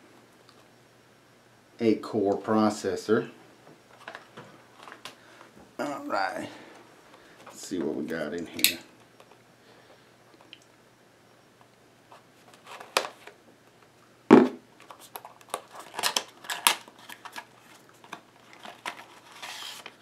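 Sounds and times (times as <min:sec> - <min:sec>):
cardboard and plastic rustles: 0:03.9 - 0:05.2, 0:12.1 - 0:13.4, 0:14.8 - 0:20.0
loud thump: 0:14.3 - 0:14.6.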